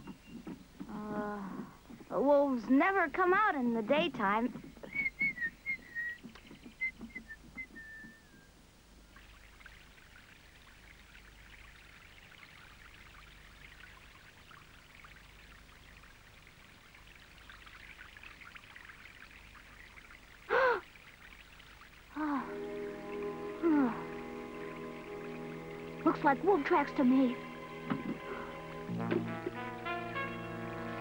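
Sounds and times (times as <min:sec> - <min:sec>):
high falling whistled notes: 0:04.8 - 0:08.6
water pouring and trickling: 0:09.0 - 0:31.0.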